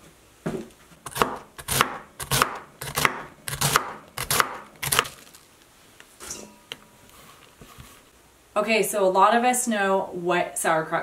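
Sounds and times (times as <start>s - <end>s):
knife slicing cabbage: 1.1s - 5.4s.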